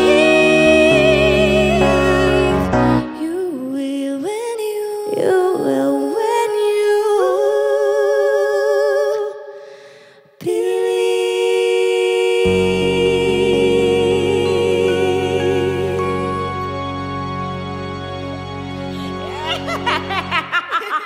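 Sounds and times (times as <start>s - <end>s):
low keyboard notes: 0.0s - 3.5s, 12.4s - 20.5s
women singing in harmony: 0.0s - 9.7s, 10.3s - 17.0s.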